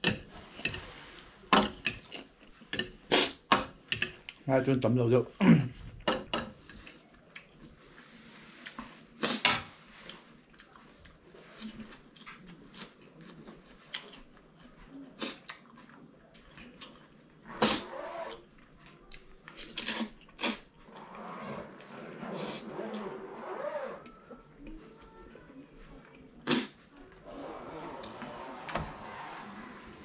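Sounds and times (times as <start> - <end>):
person slurping noodles: 17.5 - 18.3.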